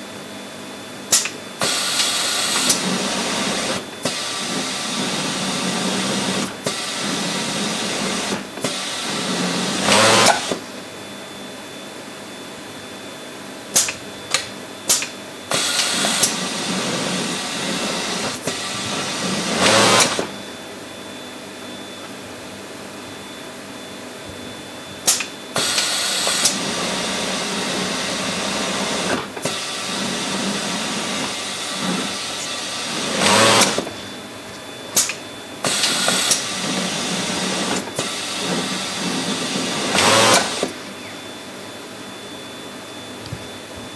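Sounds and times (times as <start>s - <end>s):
serger machine stitching: 1.2s - 10.6s, 15.5s - 20.4s, 25.1s - 34.0s, 35.0s - 40.8s
sharp clicks: 13.8s - 15.2s.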